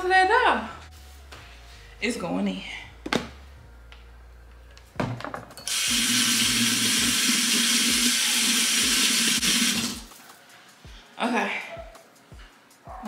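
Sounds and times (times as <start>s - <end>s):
faucet water running into sink: 5.7s - 10.1s
hands being washed: 5.7s - 10.1s.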